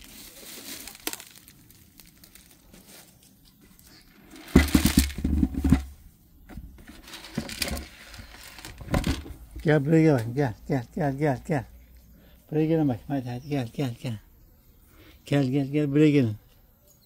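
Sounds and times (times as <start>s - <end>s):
leaves crackling underfoot: 0.0s - 5.7s, 6.7s - 11.6s.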